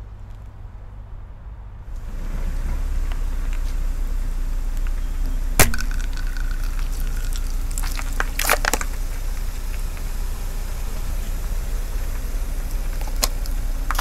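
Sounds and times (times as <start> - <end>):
low rumble of car: 0.0 - 14.0
slime squeezing out: 5.6 - 9.0
plastic tube cracking under tyre: 5.6 - 10.1, 12.7 - 14.0.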